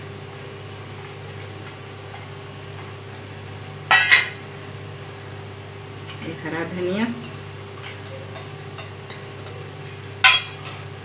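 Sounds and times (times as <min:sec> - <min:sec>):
metal bowl clink: 0:10.2 - 0:10.9.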